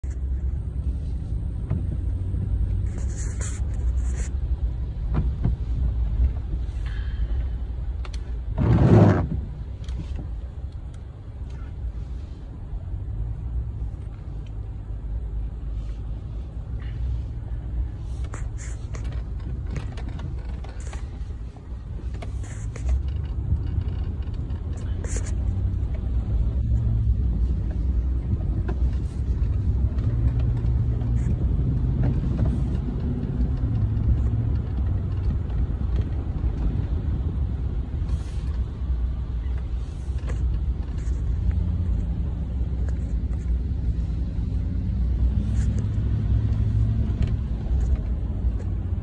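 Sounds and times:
truck engine and tyres rumbling: 0:00.0 - 0:49.0.

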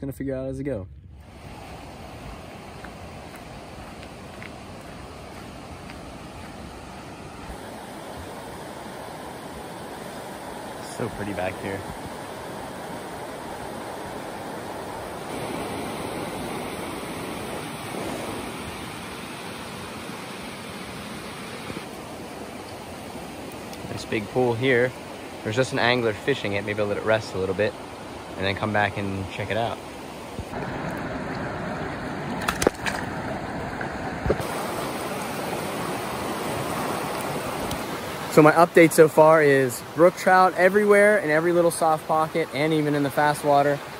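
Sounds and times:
river flowing over rocks: 0:01.3 - 0:43.9
river rapids rushing: 0:33.4 - 0:43.9.

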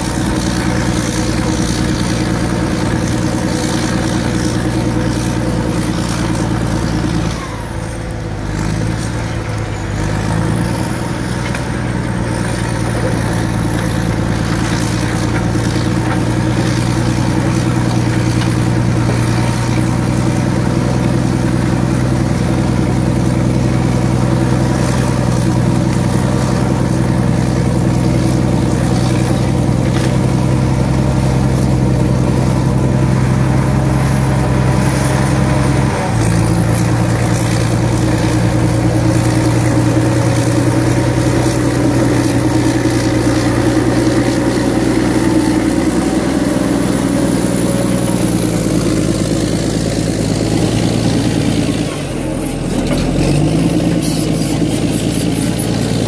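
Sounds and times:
bulldozer diesel engine running: 0:00.0 - 0:56.0.

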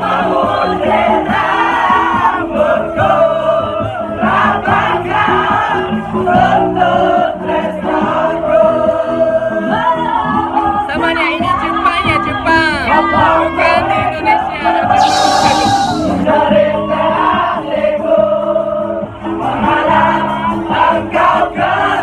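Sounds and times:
crowd singing along: 0:00.0 - 0:22.0
live band music: 0:11.0 - 0:16.9.

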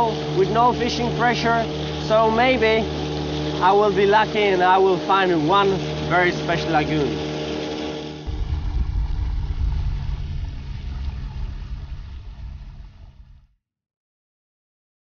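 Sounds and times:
boat motor running: 0:00.0 - 0:13.4.

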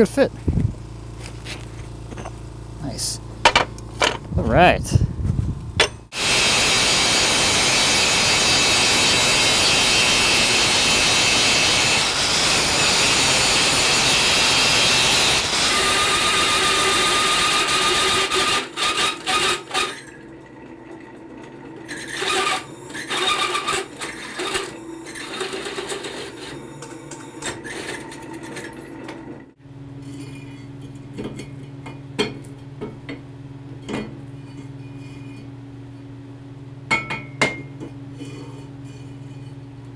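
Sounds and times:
low motor hum: 0:00.0 - 0:06.1
metal clanks and knocks: 0:03.4 - 0:04.3
angle grinder grinding steel: 0:05.9 - 0:20.1, 0:21.9 - 0:28.8.

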